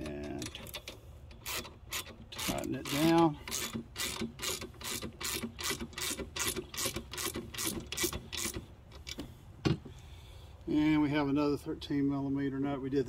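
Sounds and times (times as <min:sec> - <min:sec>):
ratchet wrench clicking: 0:00.0 - 0:09.2.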